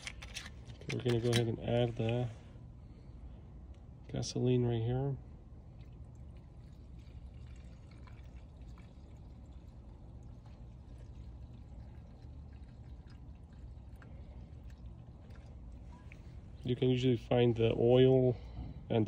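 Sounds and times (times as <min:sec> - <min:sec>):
fuel pouring into tank: 0:05.7 - 0:17.0.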